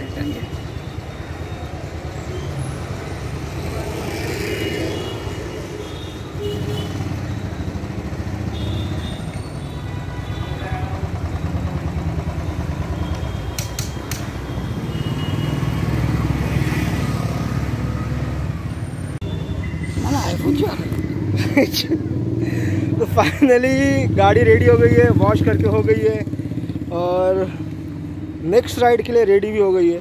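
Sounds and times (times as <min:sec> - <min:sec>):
street traffic passing: 0:00.0 - 0:30.0
motorcycle engine running low: 0:10.8 - 0:14.9.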